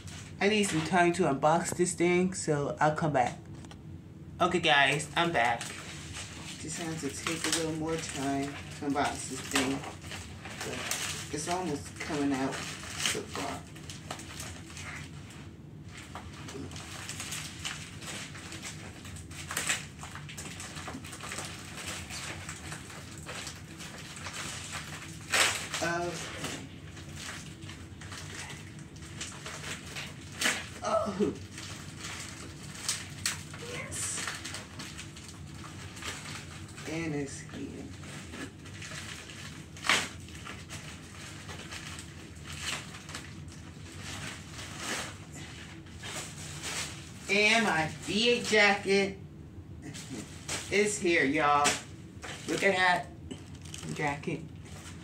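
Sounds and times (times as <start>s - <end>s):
plastic mailer bag crinkling: 0.0s - 2.4s, 4.4s - 49.0s, 49.9s - 55.0s.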